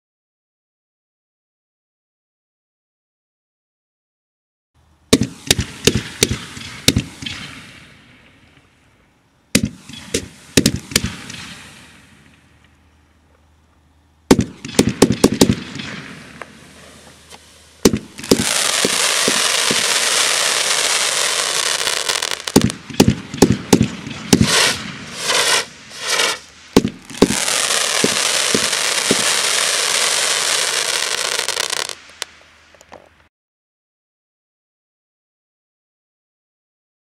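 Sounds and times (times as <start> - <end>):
firework bangs and bursts: 5.1 - 8.3, 9.5 - 12.5, 14.3 - 32.4
dense firework crackling: 5.1 - 8.5, 9.6 - 12.6, 14.3 - 33.0.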